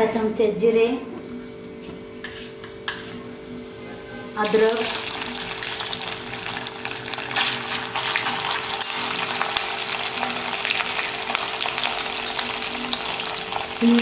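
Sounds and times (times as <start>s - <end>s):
spices sizzling in hot oil: 4.2s - 14.0s
steel spoon stirring: 7.3s - 11.8s.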